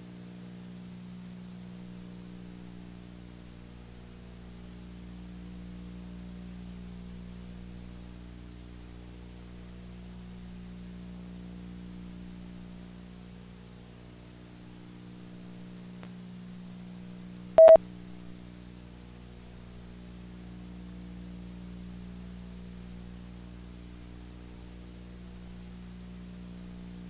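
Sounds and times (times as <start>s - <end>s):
electrical hum: 17.6s - 17.8s
short loud beep with click: 17.6s - 17.8s.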